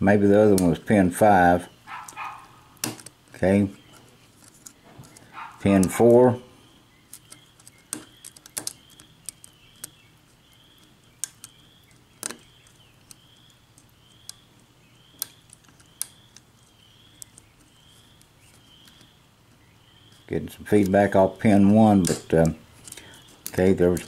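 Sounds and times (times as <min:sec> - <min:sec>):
faint high chirp: 0:06.5 - 0:20.4.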